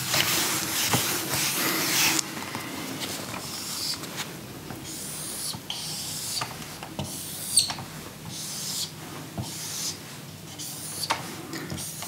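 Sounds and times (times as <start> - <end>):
marker squeaking on whiteboard: 3.4 - 4.1, 4.8 - 12.0.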